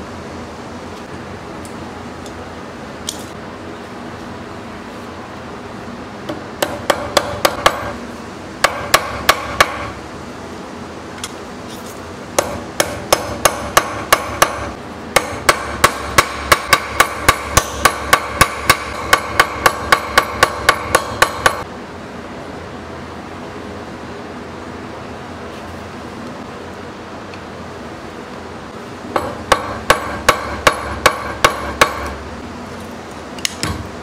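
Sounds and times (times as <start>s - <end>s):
hammer tapping metal on anvil: 6.3s - 8.0s, 8.6s - 10.0s, 12.4s - 21.7s, 29.2s - 32.2s.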